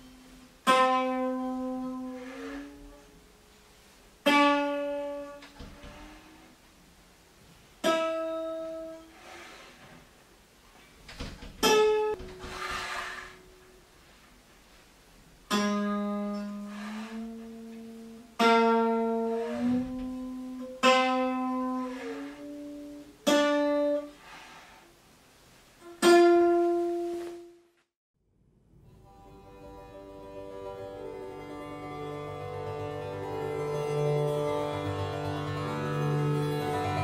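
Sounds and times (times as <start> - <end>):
plucked string with sliding pitch: 29.0 - 37.0.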